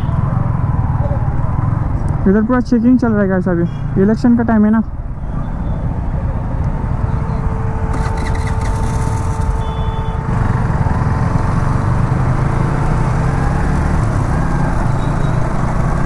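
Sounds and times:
town traffic: 0.0s - 16.0s
motorcycle engine running: 7.0s - 16.0s.

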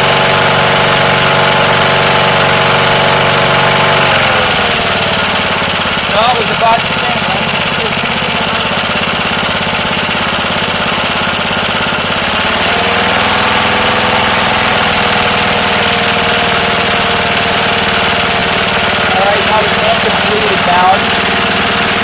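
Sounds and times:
lawnmower engine running: 0.0s - 22.0s
thin steady whine: 15.6s - 22.0s.

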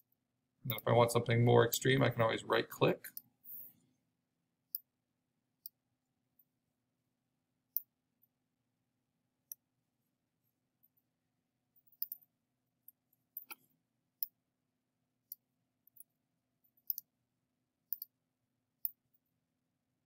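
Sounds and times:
computer mouse clicking: 11.9s - 12.2s, 16.8s - 17.1s, 17.9s - 18.1s.

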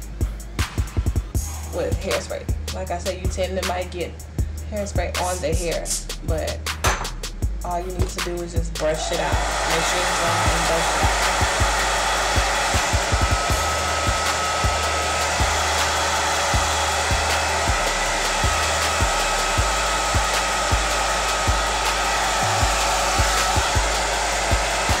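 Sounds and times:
background music with bass beat: 0.0s - 25.0s
hair dryer blowing: 5.1s - 6.0s, 7.9s - 25.0s.

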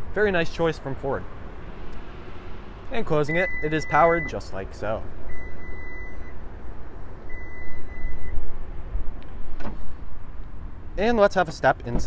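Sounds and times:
high warning beep: 3.2s - 4.4s, 5.3s - 6.4s, 7.3s - 8.4s.

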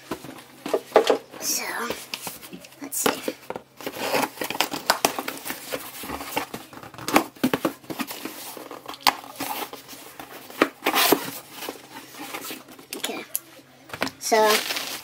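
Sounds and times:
cardboard crinkling and scraping: 0.0s - 13.2s, 13.9s - 15.0s
tape tearing: 3.8s - 13.0s, 14.3s - 15.0s.

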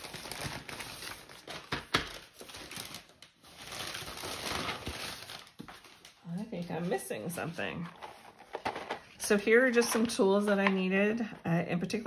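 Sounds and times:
paper mailer crinkling: 0.0s - 6.2s.

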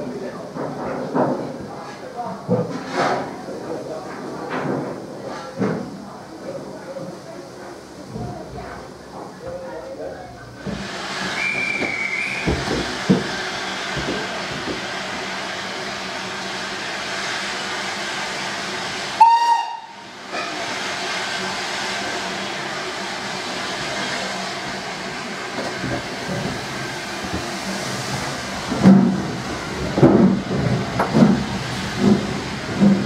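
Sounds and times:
steam hissing: 10.6s - 33.0s
steam whistle: 11.4s - 12.5s, 19.2s - 20.0s.

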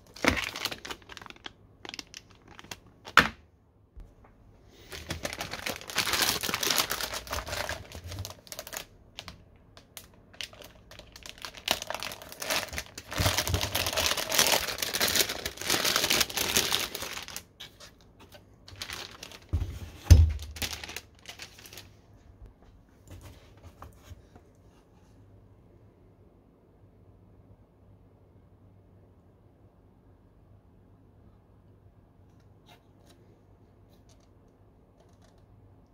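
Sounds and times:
plastic bag crinkling: 0.0s - 3.2s, 4.7s - 17.9s, 18.6s - 22.0s.

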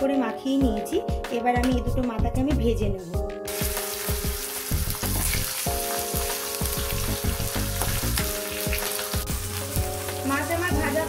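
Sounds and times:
fish frying in hot oil: 3.5s - 11.0s.

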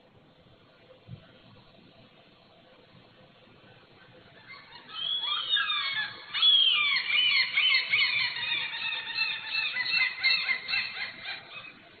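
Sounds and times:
gull calling: 4.3s - 12.0s.

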